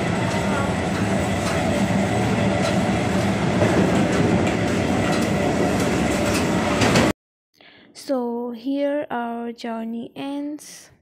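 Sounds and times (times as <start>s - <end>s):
train rumble and rattle: 0.0s - 7.1s.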